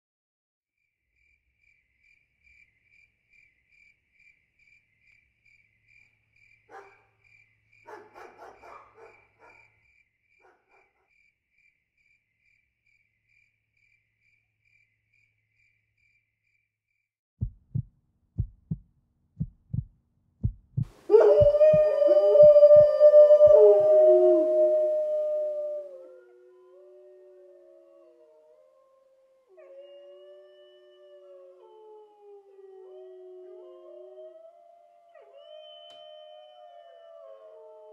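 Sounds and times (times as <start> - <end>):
low thumps: 19.4 - 23.6
dogs howling: 21.1 - 37.9.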